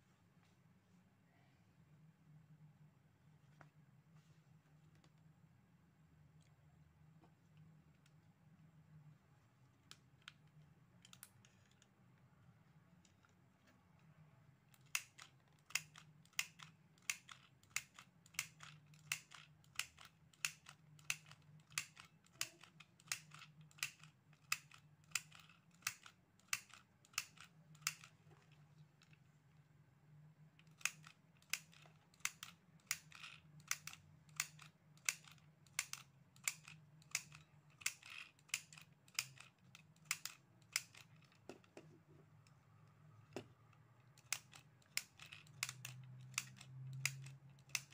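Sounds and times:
sewing machine clicking: 0:44.1 - 0:47.9.

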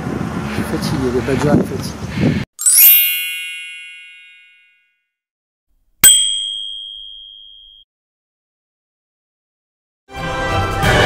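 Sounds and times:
shimmering chime: 0:02.6 - 0:04.7, 0:06.0 - 0:07.8
sharp bell ding: 0:02.6 - 0:04.9, 0:06.0 - 0:07.8.

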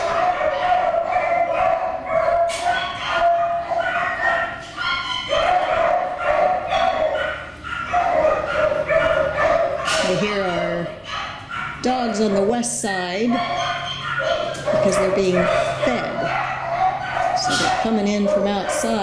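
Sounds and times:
many dogs barking and yipping: 0:00.0 - 0:19.0.

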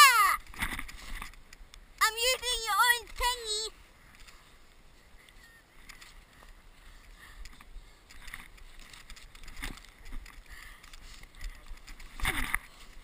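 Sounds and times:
crunches and knocks of snow: 0:08.0 - 0:13.0.

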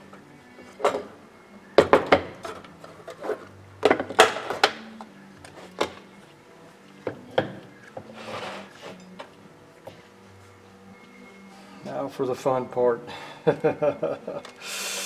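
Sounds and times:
short wooden scrape: 0:08.2 - 0:08.7.

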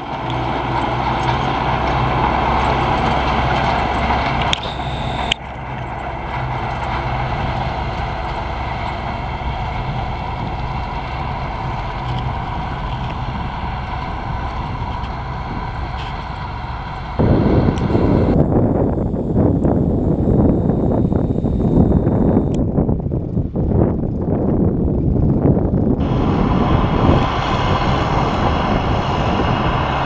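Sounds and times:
tractor diesel engine under load: 0:00.0 - 0:22.6, 0:24.8 - 0:30.0.

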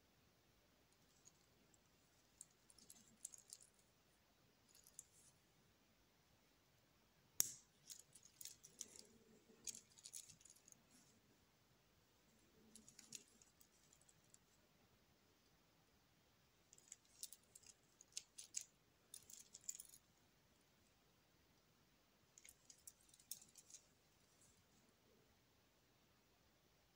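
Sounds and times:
metal bracelet clicking and rattling: 0:01.0 - 0:03.8, 0:04.6 - 0:05.3, 0:07.4 - 0:10.8, 0:12.6 - 0:14.4, 0:16.7 - 0:20.1, 0:22.4 - 0:24.0.

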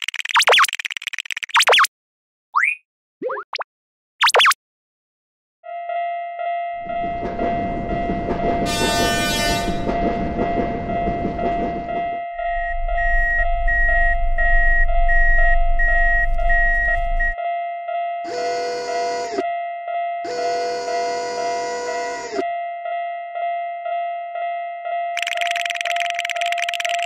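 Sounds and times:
level crossing warning bell: 0:05.7 - 0:25.3
low rolling rumble: 0:06.8 - 0:17.4
train rushing past: 0:06.8 - 0:17.4
train horn: 0:08.5 - 0:10.1, 0:18.2 - 0:19.6, 0:20.2 - 0:22.6.

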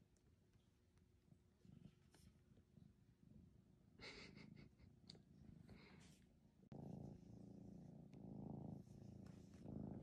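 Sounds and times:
kitten purring: 0:01.2 - 0:10.0
soft rustling: 0:08.8 - 0:10.0.

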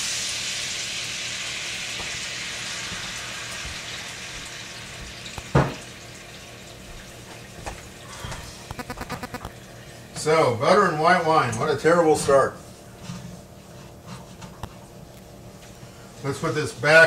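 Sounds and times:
wine sizzling in a hot pan: 0:00.0 - 0:09.6.

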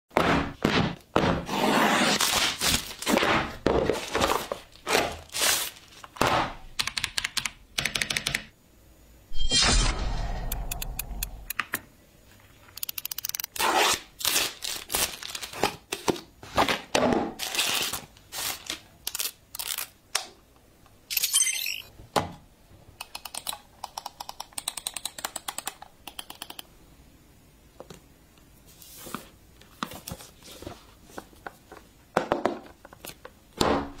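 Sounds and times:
packaging crinkling and tearing: 0:02.1 - 0:03.2, 0:04.0 - 0:06.2, 0:14.2 - 0:16.0, 0:17.4 - 0:20.0
keyboard and mouse clicks: 0:06.8 - 0:08.5, 0:10.5 - 0:11.9, 0:12.8 - 0:13.5, 0:23.0 - 0:26.7.

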